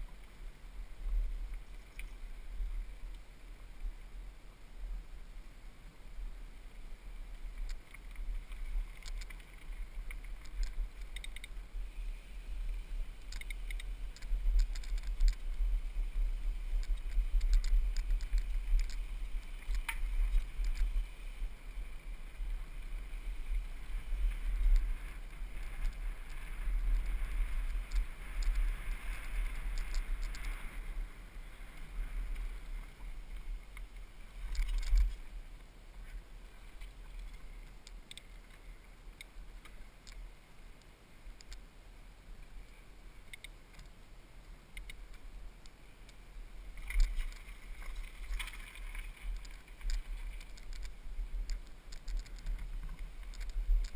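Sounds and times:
bike rattling and clicking: 7.6s - 11.6s, 13.1s - 15.7s, 16.3s - 21.4s, 22.0s - 30.7s, 33.8s - 35.2s, 46.8s - 53.9s.

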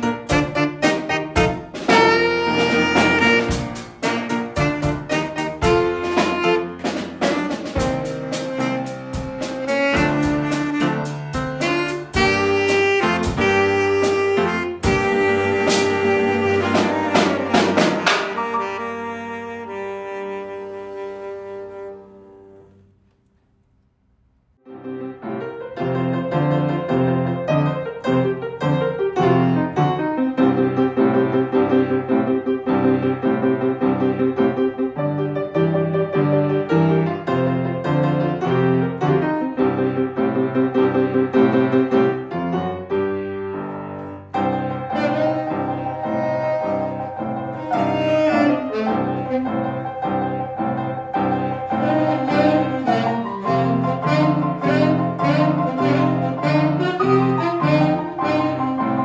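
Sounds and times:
piano chords: 0.0s - 23.6s, 24.6s - 59.0s
bass: 0.0s - 59.0s
saxophone long held notes: 0.3s - 22.8s, 44.9s - 59.0s.

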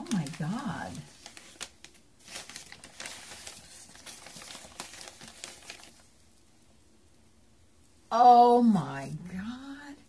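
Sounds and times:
packaging crinkling and rustling: 0.0s - 6.2s.

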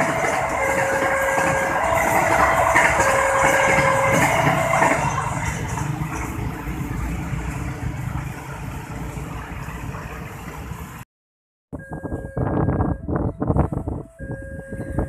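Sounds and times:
two-tone crossing alarm: 0.0s - 5.5s, 11.7s - 15.0s.

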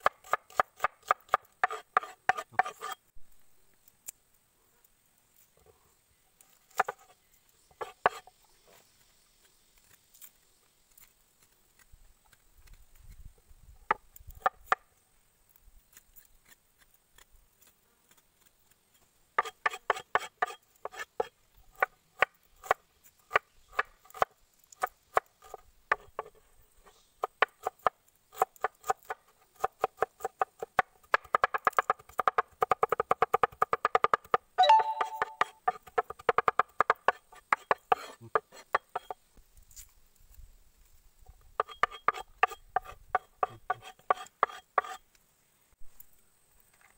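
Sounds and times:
cleaver chopping on wooden board: 0.0s - 2.9s, 27.3s - 39.1s.

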